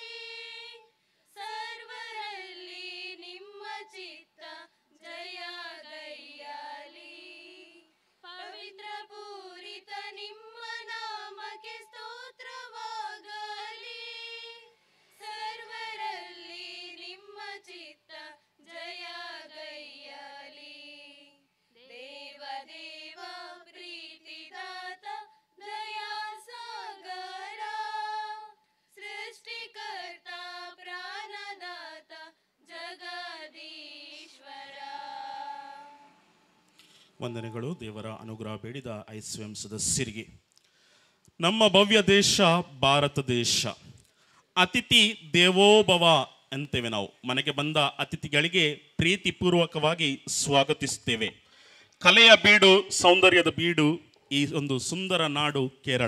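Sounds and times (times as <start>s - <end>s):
women singing unaccompanied: 0.0s - 36.2s.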